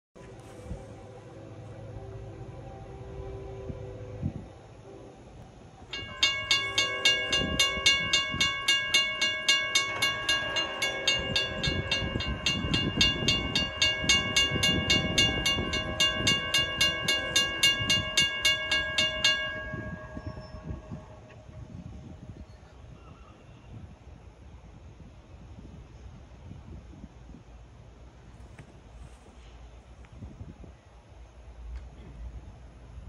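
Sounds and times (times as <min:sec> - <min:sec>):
mechanical crossing bell ringing: 0:05.9 - 0:21.9
electronic crossing bell ringing: 0:05.9 - 0:22.2.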